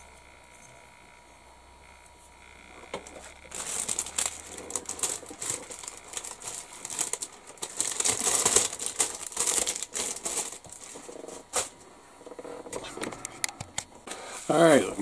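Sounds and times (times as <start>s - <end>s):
bubble wrap crinkling: 2.6s - 13.1s.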